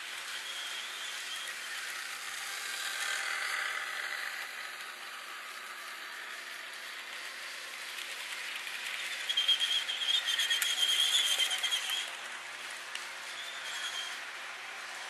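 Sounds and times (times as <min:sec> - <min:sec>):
model train cars rolling: 0:00.0 - 0:15.0
high-pitched squeal: 0:00.2 - 0:04.2, 0:08.9 - 0:12.3, 0:13.2 - 0:14.4.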